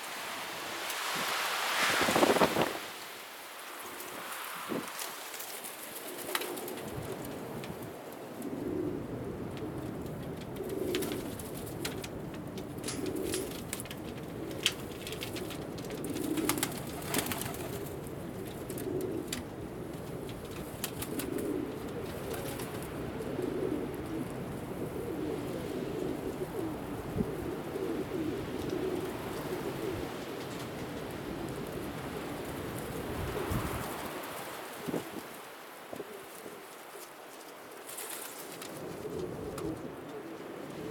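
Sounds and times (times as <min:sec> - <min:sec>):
pigeons cooing: 0:03.8 - 0:40.9.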